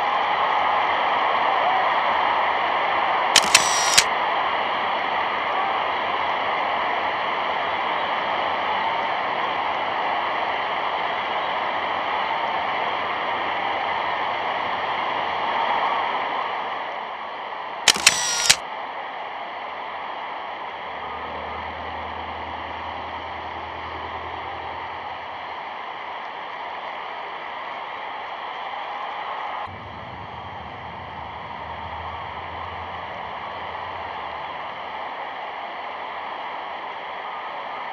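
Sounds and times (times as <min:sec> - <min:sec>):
camera shutter clicks: 0:03.4 - 0:04.1, 0:17.9 - 0:18.6.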